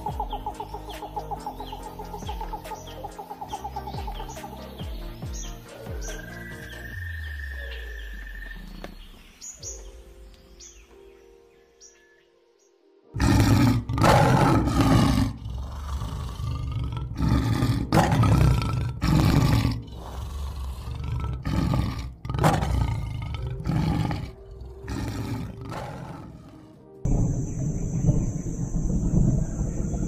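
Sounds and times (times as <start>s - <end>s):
lion roaring: 13.2s - 30.0s.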